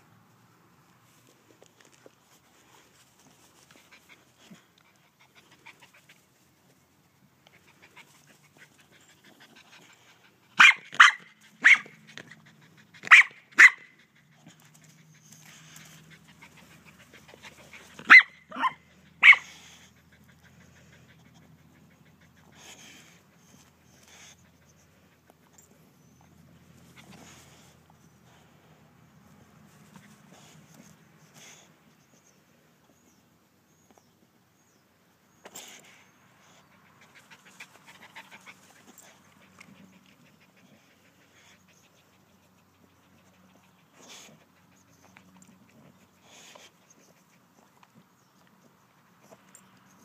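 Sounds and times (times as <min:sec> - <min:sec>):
dog barking sharply: 0:10.6 - 0:12.0, 0:13.1 - 0:14.0, 0:18.0 - 0:19.5
dog snuffling at grass: 0:35.5 - 0:48.0.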